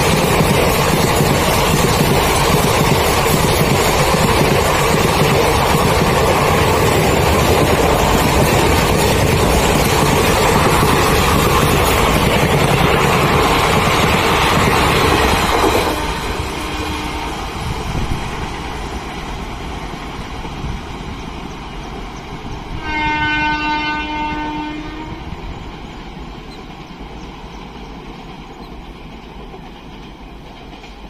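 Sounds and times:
passenger train rushing past: 0.0s - 31.0s
train wheels on rail: 0.0s - 31.0s
locomotive horn blast: 15.9s - 17.5s, 22.7s - 25.4s.

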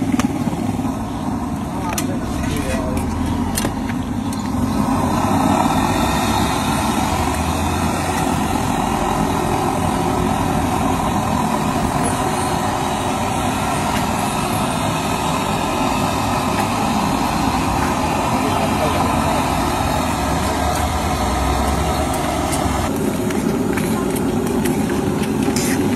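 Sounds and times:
hot oil sizzling: 1.0s - 23.7s.

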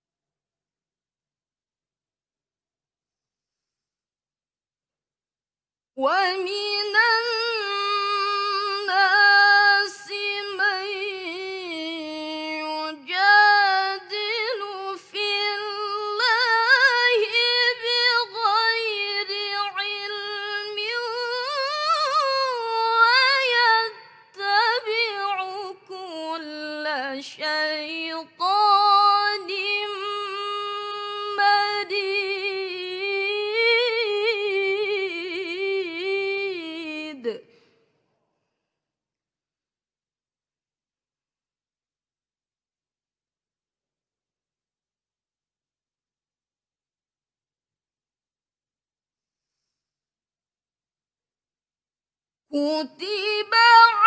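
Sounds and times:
girl reciting melodically: 6.0s - 36.6s, 52.6s - 54.0s.

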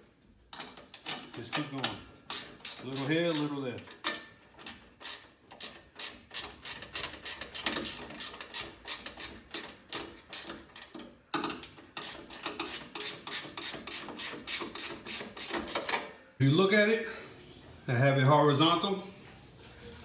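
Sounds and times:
ratchet wrench clicking: 2.3s - 16.0s.

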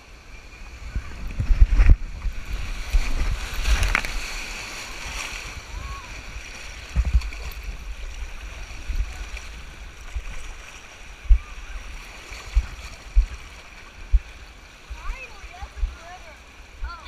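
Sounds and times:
water sloshing and lapping: 0.7s - 17.0s.

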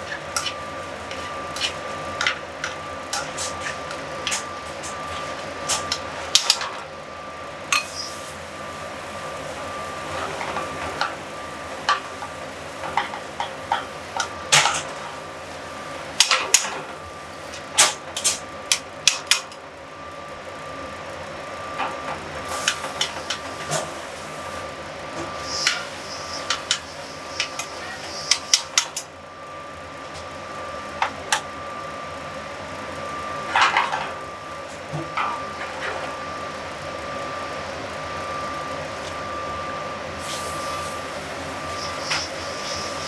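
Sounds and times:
fan hum: 0.0s - 43.0s.

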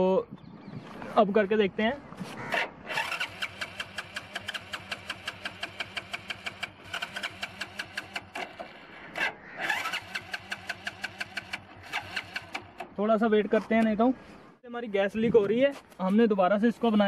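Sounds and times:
motorcycle starter cranking engine: 2.6s - 13.0s.

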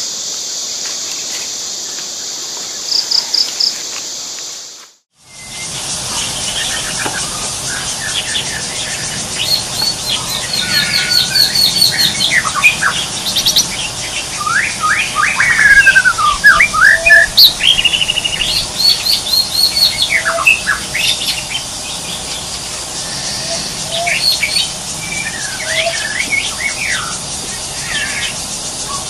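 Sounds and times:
high-pitched hiss: 0.0s - 29.0s
birds chirping: 5.3s - 29.0s.

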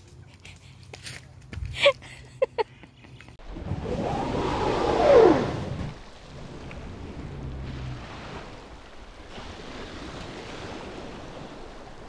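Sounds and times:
sea water washing and splashing: 4.0s - 12.0s.

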